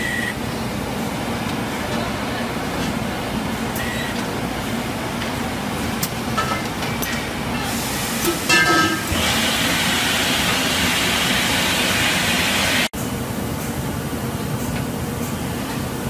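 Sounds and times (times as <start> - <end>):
factory machinery hum: 0.0 - 16.0
gas burner flames hissing: 0.4 - 14.1.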